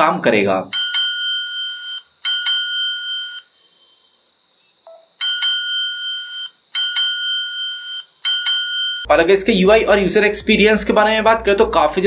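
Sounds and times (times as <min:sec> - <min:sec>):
phone alert ringing: 0:00.7 - 0:03.5, 0:04.9 - 0:09.1.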